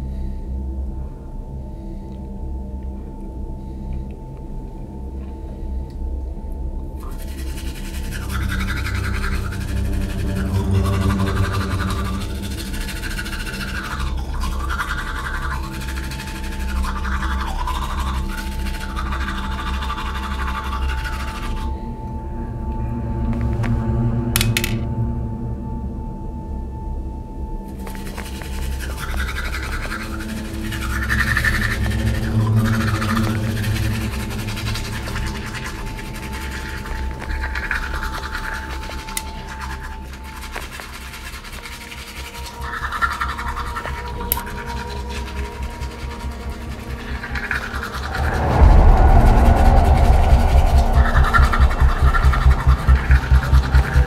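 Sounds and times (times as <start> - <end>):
low droning music: 0.0 - 54.0
scratchy rubbing noises: 7.0 - 21.7, 27.7 - 54.0
toothbrush scrubbing: 7.0 - 21.7, 27.7 - 48.8, 50.0 - 54.0
thin steady high tone: 25.1 - 54.0.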